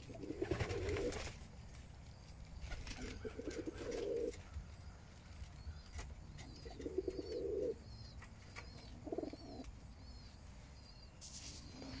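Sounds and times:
pigeons cooing: 0.0s - 1.4s, 2.6s - 4.4s, 6.4s - 9.7s.

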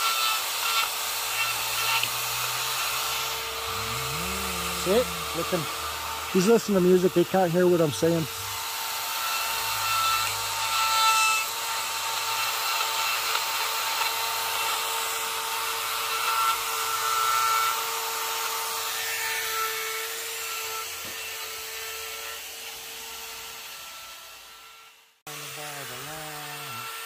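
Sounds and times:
grinding into wood: 0.0s - 10.6s
carving tool motor whine: 0.0s - 27.0s.

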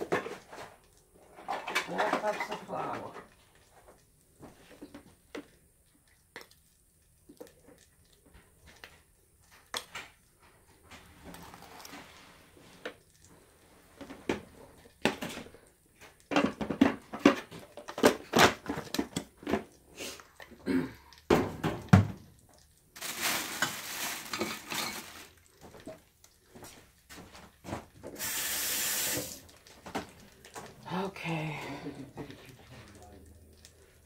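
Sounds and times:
dishes and pots clinking: 1.3s - 3.2s, 23.1s - 26.0s
running tap water: 28.0s - 30.9s.

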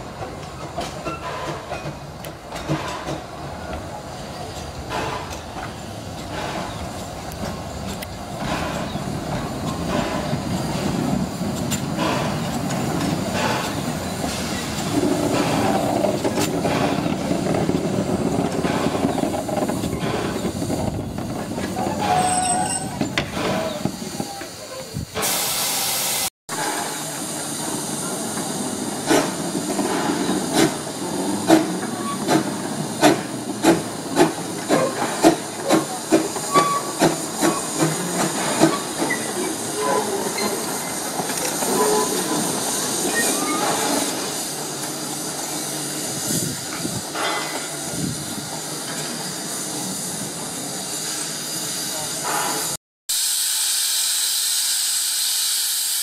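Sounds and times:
train rumbling past: 0.0s - 52.8s
steam hissing: 0.0s - 56.0s
steam locomotive chuffing: 0.0s - 56.0s.

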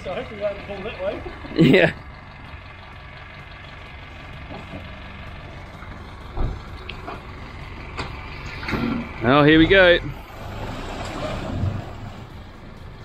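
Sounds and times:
vehicle engine running low: 0.0s - 13.0s
thump: 6.4s - 6.6s.

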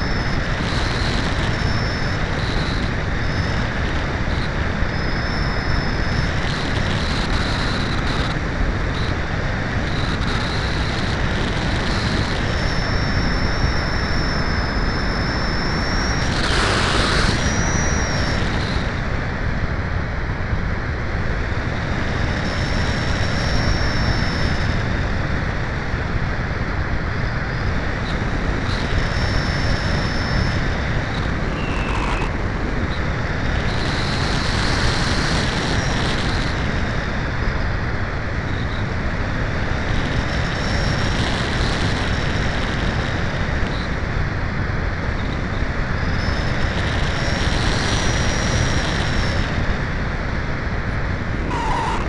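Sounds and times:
thin high whines: 0.0s - 19.1s, 27.2s - 36.8s, 45.2s - 52.0s
wind rushing over microphone: 0.0s - 52.0s.

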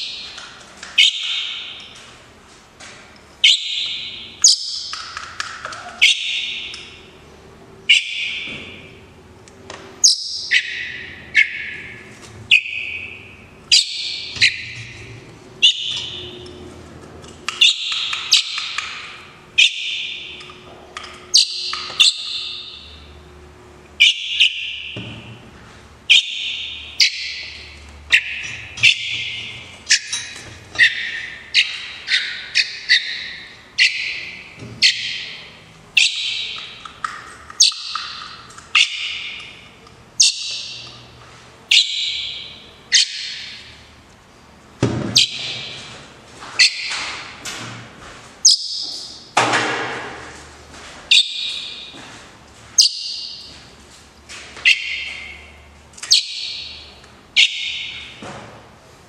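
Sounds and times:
blackbird fledglings begging calls: 1.0s - 1.8s, 10.0s - 15.0s, 15.6s - 16.4s, 17.5s - 19.0s, 21.3s - 23.0s, 26.1s - 30.2s, 30.8s - 35.4s, 36.0s - 36.9s, 37.6s - 39.6s, 52.8s - 53.5s, 56.1s - 58.1s.

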